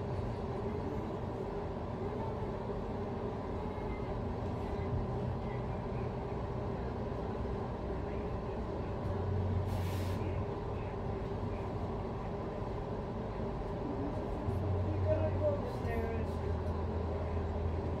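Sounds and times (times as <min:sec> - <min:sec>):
short hiss: 0:09.7 - 0:10.2.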